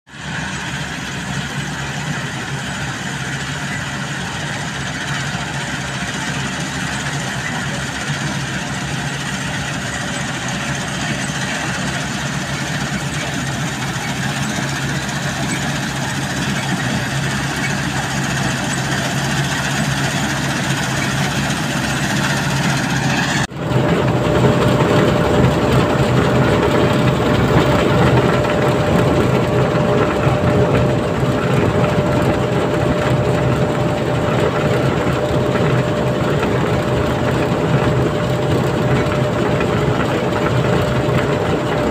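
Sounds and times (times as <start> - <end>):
combine harvester humming: 0.1 - 41.9
auger whine: 0.2 - 41.9.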